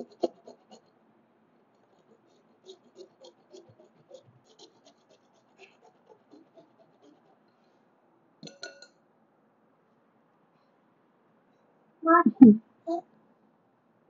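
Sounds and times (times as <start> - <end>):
grater rasping: 1.9 - 7.4
metal grater clinking on glass bowl: 8.4 - 8.9.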